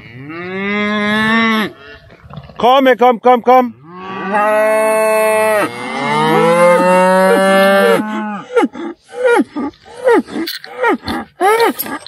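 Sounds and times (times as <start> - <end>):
cattle mooing loudly: 0.0 - 2.1, 3.8 - 8.6.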